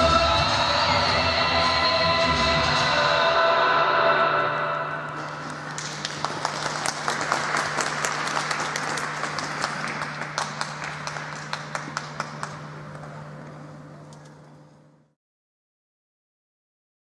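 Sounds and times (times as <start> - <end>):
spectators applauding: 5.2 - 13.4.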